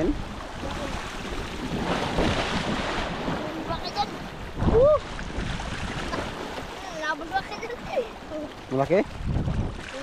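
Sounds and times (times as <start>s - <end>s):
wind buffeting microphone: 0.0s - 8.2s, 9.0s - 10.0s
sea water washing: 0.0s - 10.0s.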